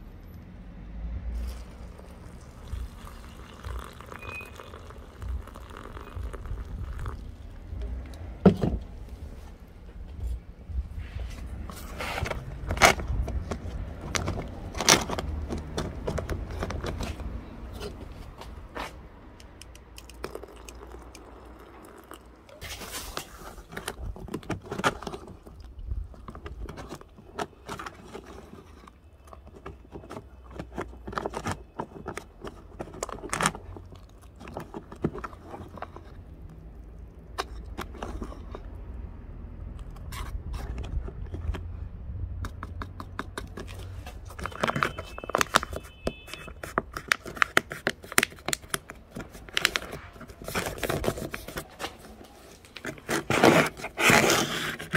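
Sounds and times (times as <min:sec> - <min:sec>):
spoon scraping inside pouch: 0:01.4 - 0:07.2, 0:37.4 - 0:38.7, 0:49.2 - 0:54.9.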